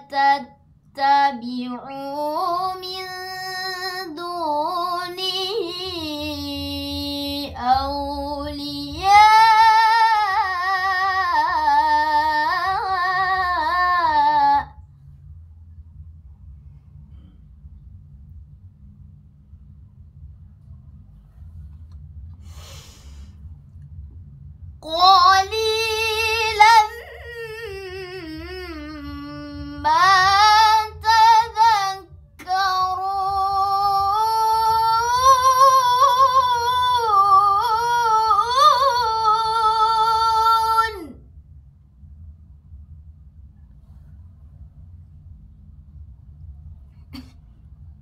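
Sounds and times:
girl chanting melodically: 0:00.0 - 0:14.8, 0:24.8 - 0:41.2
low steady hum: 0:00.0 - 0:48.0.

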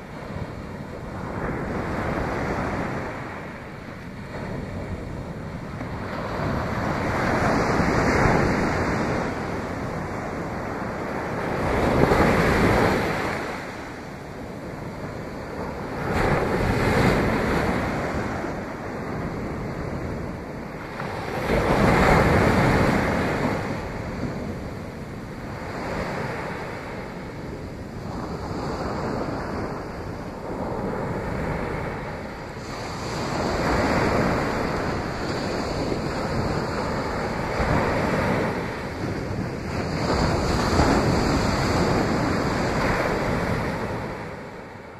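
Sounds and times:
ocean waves breaking on shore: 0:00.0 - 0:44.9.

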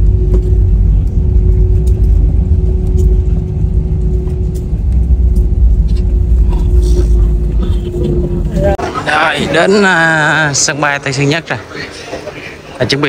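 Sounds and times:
jet airliner rolling on ground: 0:00.0 - 0:09.9.

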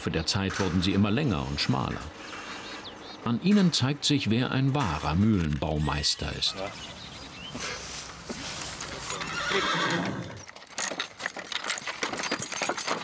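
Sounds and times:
hooves clopping: 0:04.5 - 0:13.0
horse neighing: 0:08.9 - 0:10.5.

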